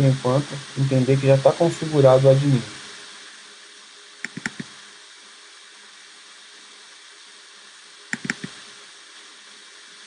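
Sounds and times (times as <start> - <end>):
microphone hiss: 0.0 - 10.0
mouse clicks: 4.2 - 4.8, 8.1 - 8.6.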